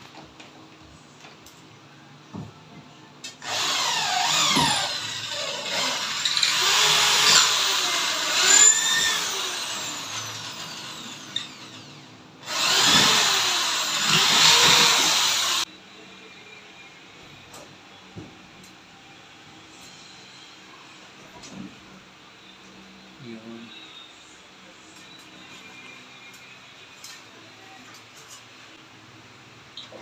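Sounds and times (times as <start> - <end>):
cordless drill drilling wood: 3.4 - 15.7.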